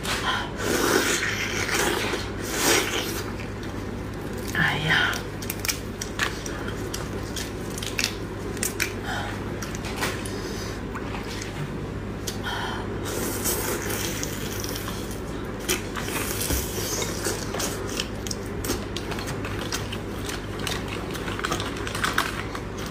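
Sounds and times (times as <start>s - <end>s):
steady low hum: 0.0s - 22.9s
prawn shells cracking: 5.2s - 9.0s, 15.6s - 22.9s.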